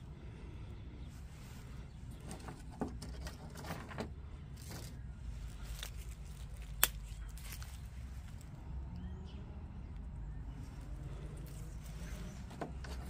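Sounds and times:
steady low rumble: 3.3 - 12.9
dry twigs clicking: 4.6 - 8.6.

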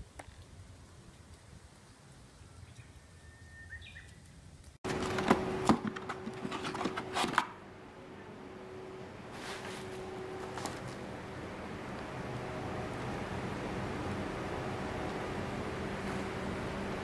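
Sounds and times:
faint steady hum: 0.0 - 17.0
packaging being handled: 4.9 - 7.5, 9.4 - 11.0.

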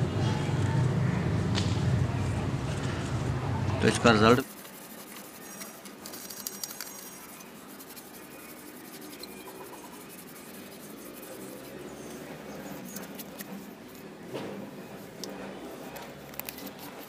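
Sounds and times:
cloth rubbing on metal: 4.0 - 17.0.

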